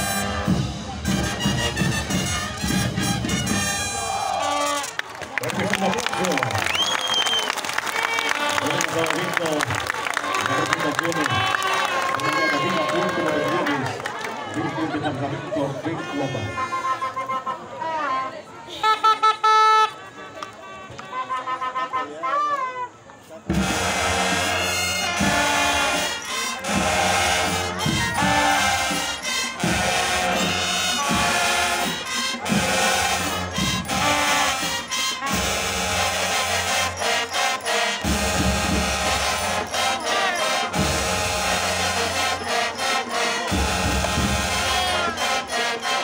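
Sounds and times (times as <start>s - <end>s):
marching band drums: 0.0s - 4.9s, 23.5s - 46.0s
marching band brass: 0.0s - 46.0s.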